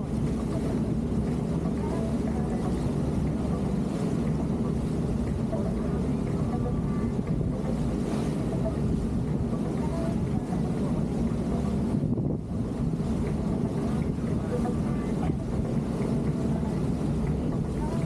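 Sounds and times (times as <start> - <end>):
boat engines rumbling: 0.0 - 18.0
water rushing past hull: 0.0 - 18.0
wind rushing: 10.2 - 14.5.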